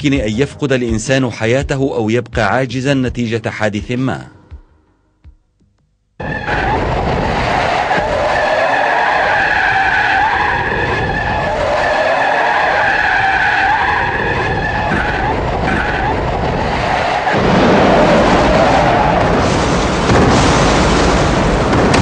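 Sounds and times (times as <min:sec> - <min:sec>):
car tyres squealing: 0:06.2 - 0:20.0
car engine: 0:06.2 - 0:20.8.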